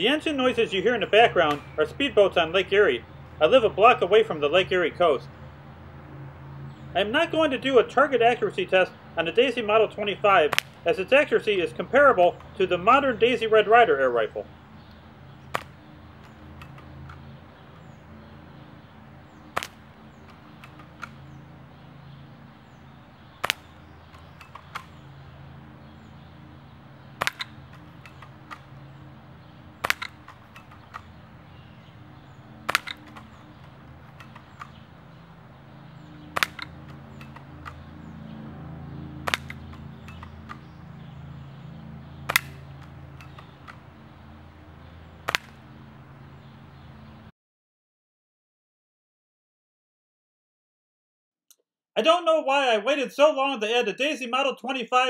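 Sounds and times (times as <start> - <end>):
speedboat engines droning: 0.0 - 47.3
bb gun shots: 10.4 - 10.8, 15.5 - 17.2, 19.5 - 21.3, 23.4 - 25.0, 27.2 - 28.8, 29.8 - 31.2, 32.6 - 34.8, 36.3 - 38.0, 39.2 - 40.7, 42.3 - 43.8, 45.2 - 45.6.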